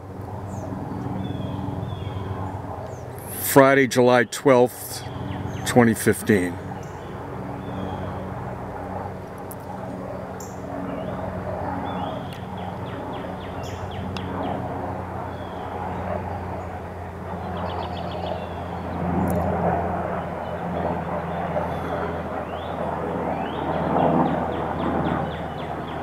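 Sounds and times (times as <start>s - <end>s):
traffic hum: 0.0s - 26.0s
birds chattering: 0.5s - 8.4s, 9.4s - 19.4s.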